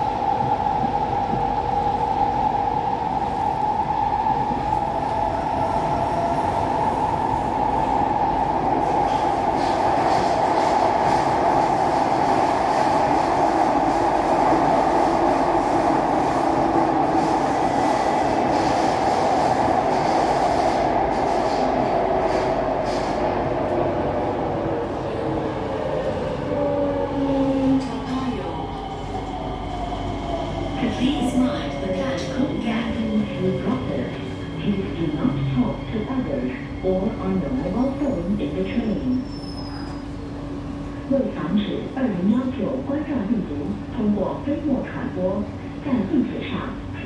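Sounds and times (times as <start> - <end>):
mid-pitched train hum: 0.0 - 47.0
train car rumble and rail noise: 0.0 - 47.0.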